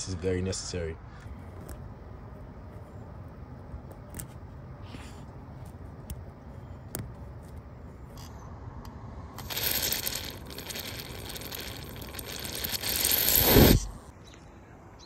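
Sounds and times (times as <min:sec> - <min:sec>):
wrench metal clicks and scrapes: 0:09.4 - 0:13.9.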